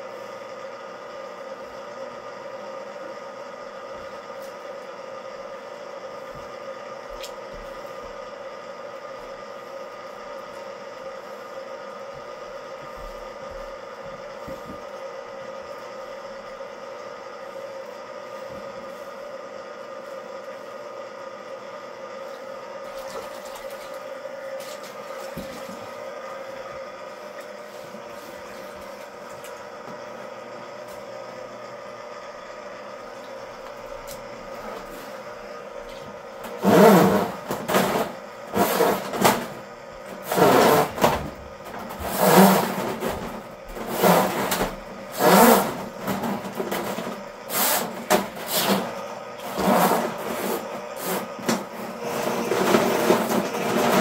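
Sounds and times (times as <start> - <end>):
drain machine running: 0.0 - 54.0.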